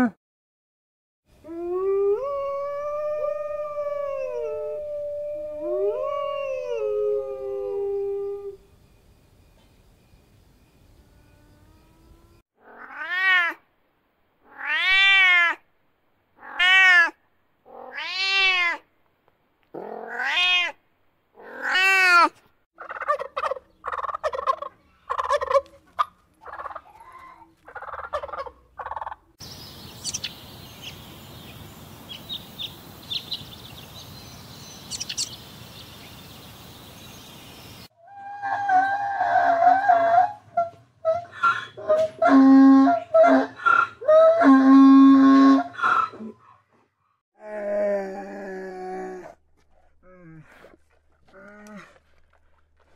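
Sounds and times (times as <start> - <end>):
faint high chirps: 7.3 - 12.4
wild turkey gobbling: 22.8 - 27.0, 27.7 - 29.2
drawn-out rising and falling animal calls: 22.8 - 29.2, 38.0 - 46.8
forest ambience hiss: 29.4 - 37.9.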